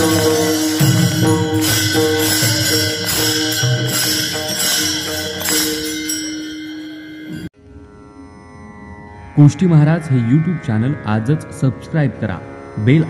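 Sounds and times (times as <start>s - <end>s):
hand drum strokes: 0.0s - 7.5s
jingling hand cymbals: 0.0s - 7.5s
steady held notes: 0.0s - 13.0s.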